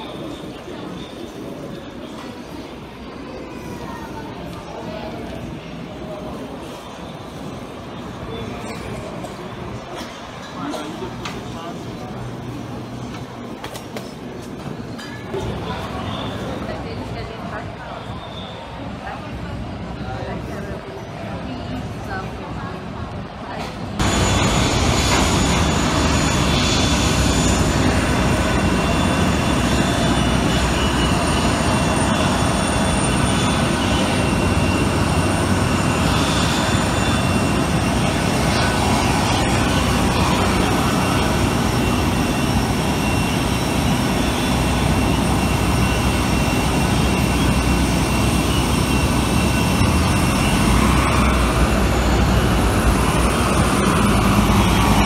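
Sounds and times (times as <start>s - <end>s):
high whining turbine tones: 24.0s - 55.0s
jet turbine rush: 24.0s - 55.0s.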